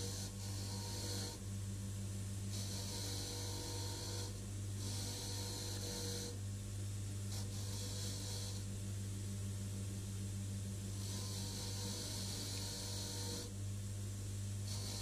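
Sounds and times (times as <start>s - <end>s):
bench grinder motor humming: 0.0s - 1.4s, 2.6s - 6.4s, 11.0s - 13.5s.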